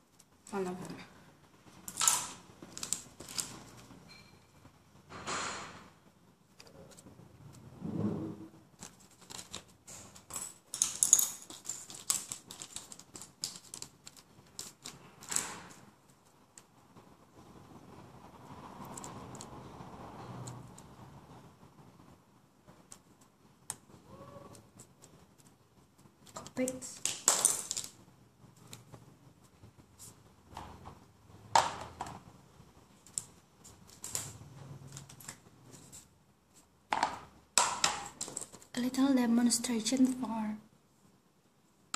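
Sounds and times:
plastic packaging clicks and crinkles: 0:01.7 - 0:04.3, 0:08.7 - 0:16.8, 0:24.6 - 0:29.0, 0:32.9 - 0:36.1.

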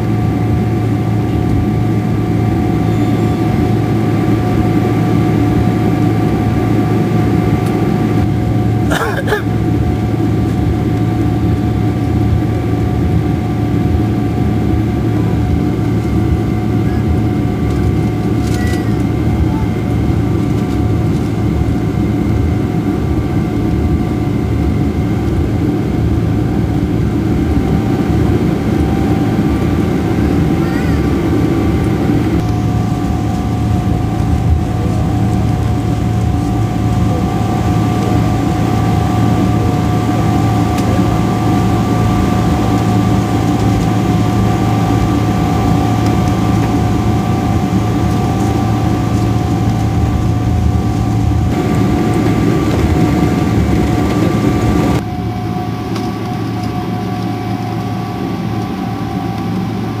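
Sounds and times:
aircraft engine hum: 0:00.0 - 1:00.0
high engine whine: 0:00.0 - 1:00.0.

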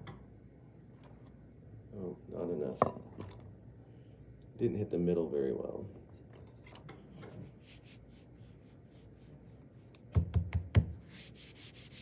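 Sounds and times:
rolling pin knocking on clay: 0:10.1 - 0:11.0.

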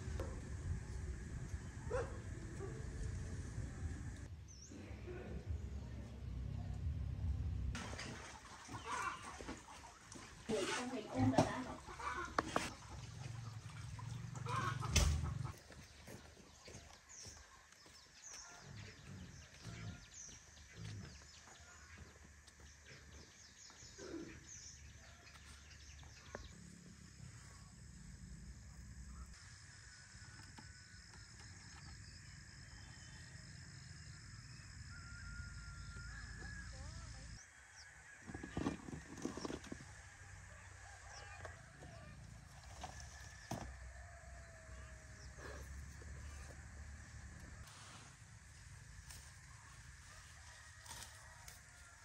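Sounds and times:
chickens clucking: 0:10.8 - 0:13.6, 0:14.3 - 0:15.7.

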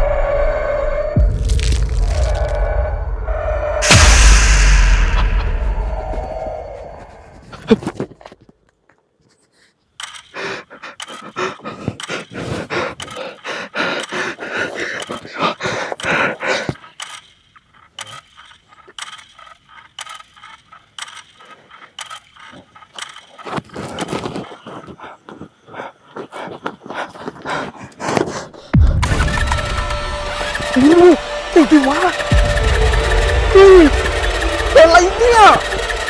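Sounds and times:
man panting hard: 0:10.2 - 0:17.0, 0:23.8 - 0:29.8.

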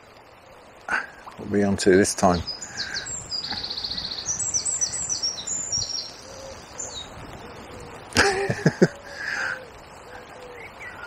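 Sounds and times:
flowing river water: 0:00.0 - 0:11.0
songbird singing high notes: 0:02.1 - 0:07.7.

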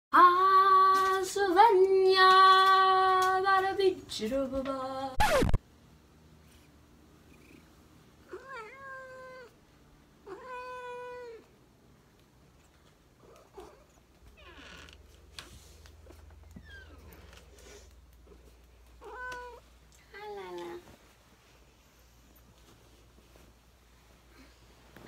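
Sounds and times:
woman singing long held notes: 0:00.1 - 0:05.2
cat meowing: 0:08.3 - 0:09.5, 0:10.2 - 0:11.5, 0:19.0 - 0:19.6.

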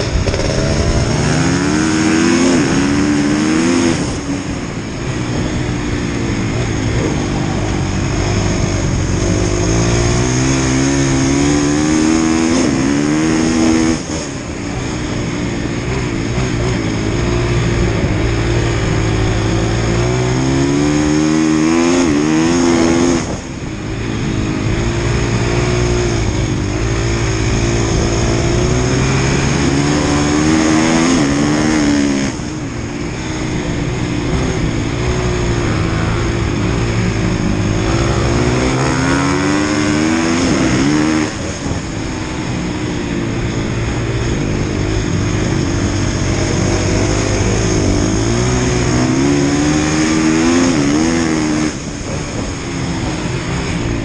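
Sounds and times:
motorcycle engine accelerating: 0:00.0 - 0:54.0.

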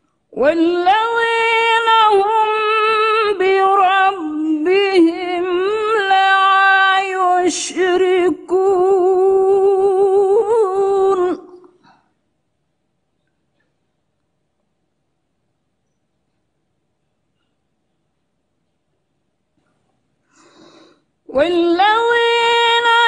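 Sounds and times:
woman reciting melodically: 0:00.3 - 0:11.8, 0:21.2 - 0:23.0.

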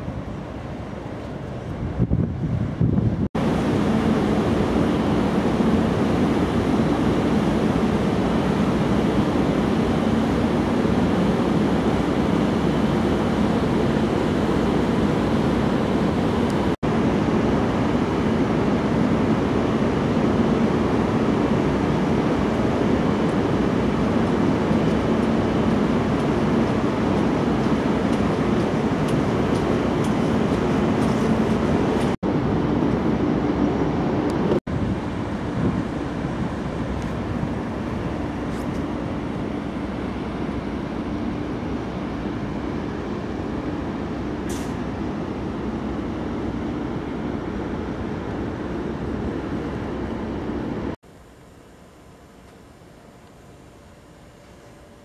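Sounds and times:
wind rushing: 0:01.8 - 0:03.7.

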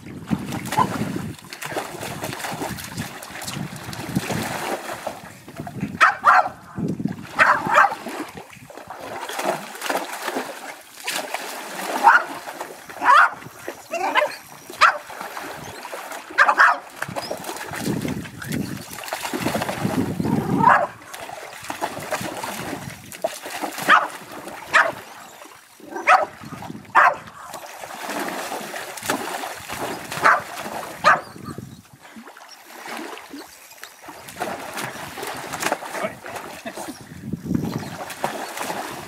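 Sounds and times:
splashing through shallow water: 0:00.0 - 0:39.0
dog barking excitedly: 0:06.0 - 0:06.6, 0:07.4 - 0:08.0, 0:12.0 - 0:12.3, 0:13.0 - 0:13.4, 0:14.0 - 0:15.1, 0:16.4 - 0:16.9, 0:20.4 - 0:21.0, 0:23.9 - 0:24.1, 0:24.7 - 0:25.0, 0:25.9 - 0:26.3, 0:26.9 - 0:27.3, 0:30.2 - 0:31.3.

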